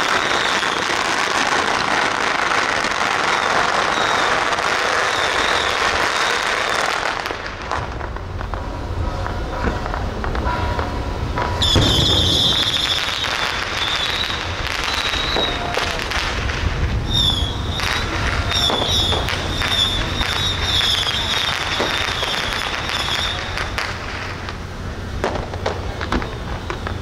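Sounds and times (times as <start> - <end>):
firecrackers crackling: 0.0 - 27.0
high wavering whistling: 11.6 - 15.8, 17.1 - 23.7.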